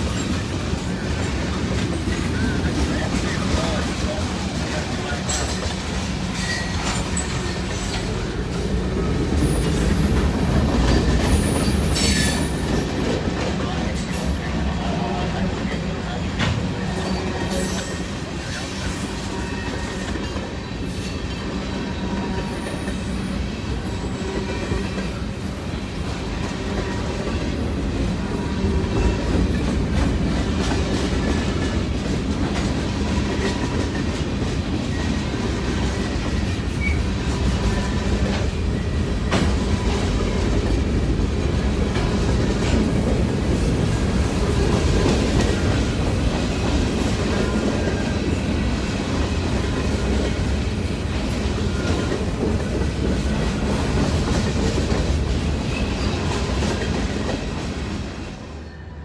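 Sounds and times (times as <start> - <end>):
train wheels rumbling on rail: 0.0 - 59.0
faint high wheel squeal: 6.3 - 8.0, 9.5 - 13.0, 16.8 - 25.2.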